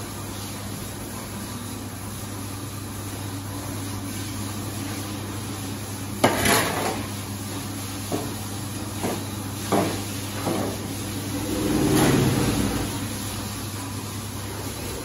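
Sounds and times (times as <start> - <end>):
steady low hum: 8.1 - 15.0.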